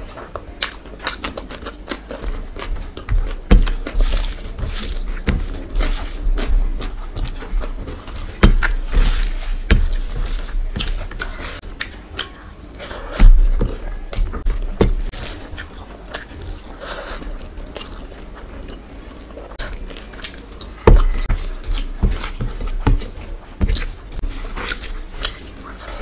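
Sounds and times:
wet chewing and mouth clicks: 0.2 - 26.0
dull thumps: 2.2 - 11.4, 13.2 - 15.2, 20.8 - 24.5.

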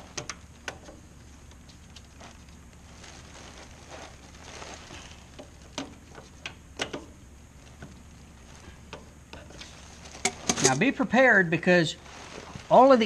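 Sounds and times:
rustling of gloves: 0.0 - 13.0
sharp metal clicks and knocks: 5.4 - 7.2.

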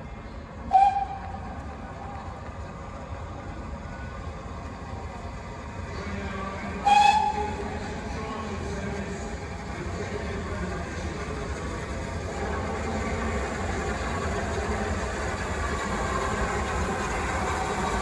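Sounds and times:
train rumbling: 0.0 - 18.0
steam locomotive whistle blast: 0.7 - 1.3, 6.8 - 7.5.

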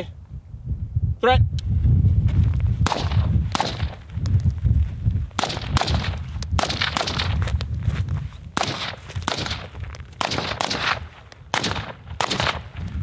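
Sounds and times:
rifle gunshots: 2.9 - 4.0, 5.4 - 7.4, 8.6 - 12.8.

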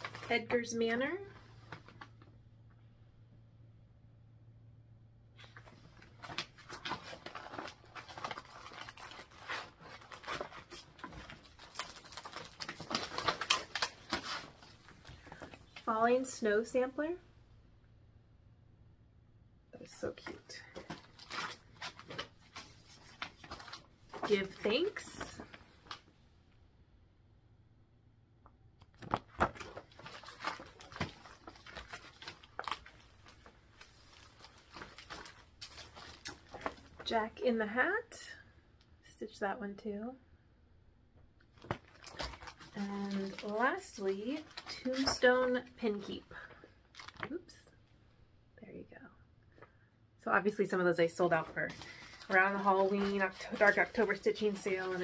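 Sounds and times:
paper and plastic sleeves rustling: 0.0 - 2.3, 5.4 - 16.3, 19.8 - 26.1, 28.9 - 37.2, 41.5 - 47.5, 50.5 - 55.0.

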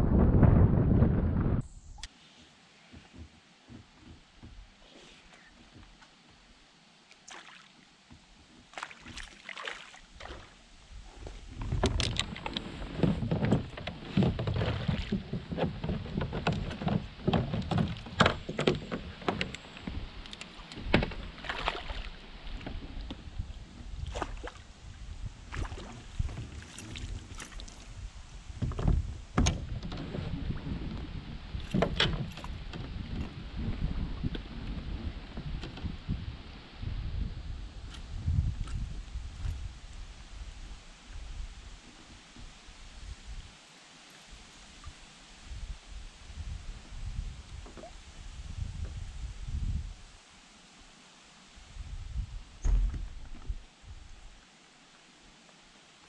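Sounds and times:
water splashing: 7.1 - 7.9, 8.6 - 10.7, 13.9 - 23.1, 24.0 - 24.7, 25.5 - 28.0.

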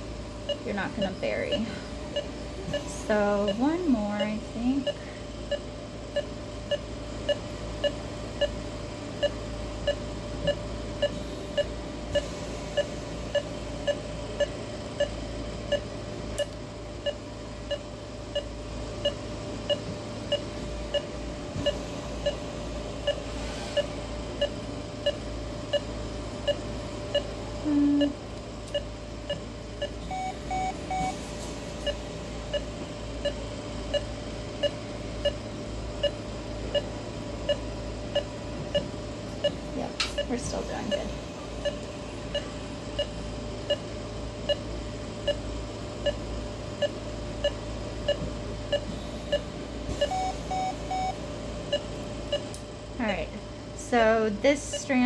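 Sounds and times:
low steady hum: 0.0 - 55.0
patient monitor beeping: 0.4 - 8.6, 9.2 - 52.5, 54.5 - 55.0
brief lower tone: 27.6 - 28.2.

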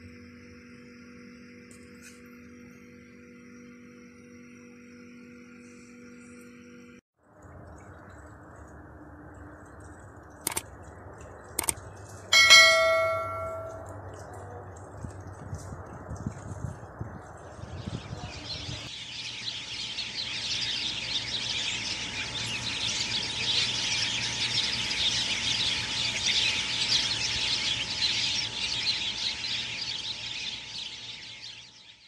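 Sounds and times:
small birds chirping: 16.9 - 32.0.

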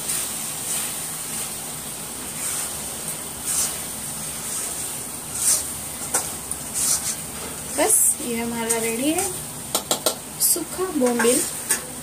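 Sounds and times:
chutney sizzling in a pan: 0.0 - 12.0
metal spoon scraping pan: 3.4 - 7.6, 11.0 - 11.9.

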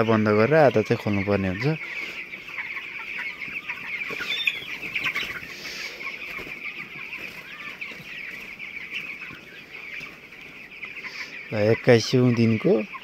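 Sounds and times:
flock of chicks peeping: 0.0 - 13.0.

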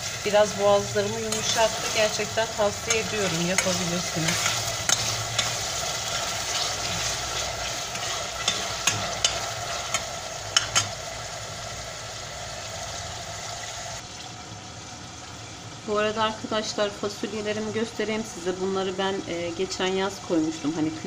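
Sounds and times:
meat and onions sizzling: 0.0 - 21.0
metal spoon scraping pot: 1.0 - 11.0.

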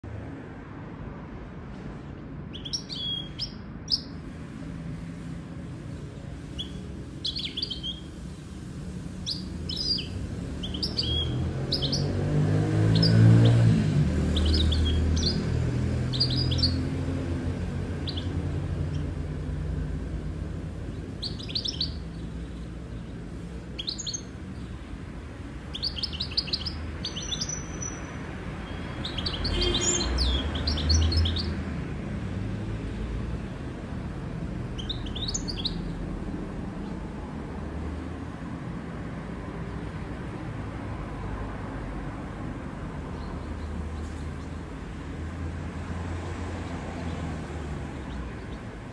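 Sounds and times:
canary chirping: 2.5 - 4.3, 6.3 - 32.0, 32.8 - 37.2, 43.0 - 44.8, 47.9 - 48.9.

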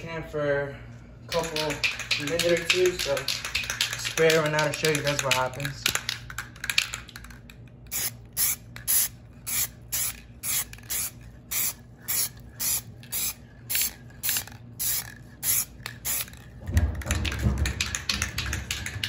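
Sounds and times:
aerosol can spraying: 7.9 - 16.4.

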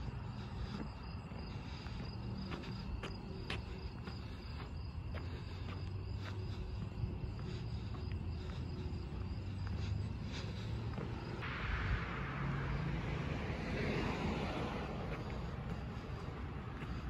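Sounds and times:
footsteps on pavement: 0.0 - 11.5, 14.0 - 17.0
crickets chirping: 0.0 - 17.0
low rumble: 7.2 - 17.0.

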